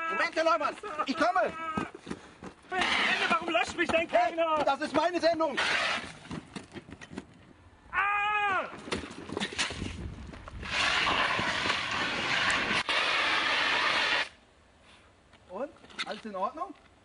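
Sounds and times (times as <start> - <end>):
person yelling: 0.0 - 2.0, 7.9 - 8.8.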